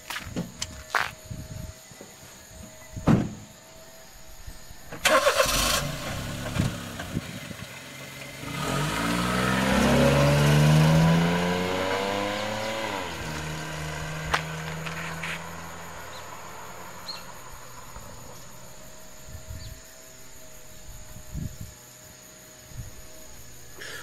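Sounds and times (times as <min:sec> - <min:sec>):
sharp thump: 0:03.0 - 0:03.5
car engine accelerating: 0:04.1 - 0:21.6.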